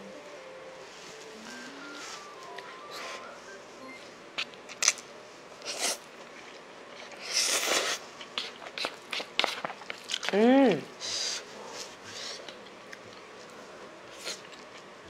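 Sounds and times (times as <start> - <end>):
person slurping noodles: 7.1 - 8.0.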